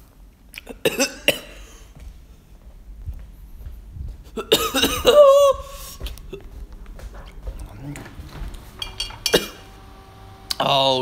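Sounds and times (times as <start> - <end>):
man coughing: 0.7 - 2.0, 4.4 - 6.5, 9.2 - 9.7.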